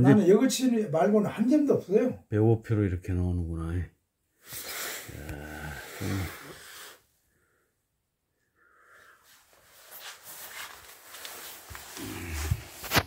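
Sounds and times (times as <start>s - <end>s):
man talking: 0.0s - 3.9s.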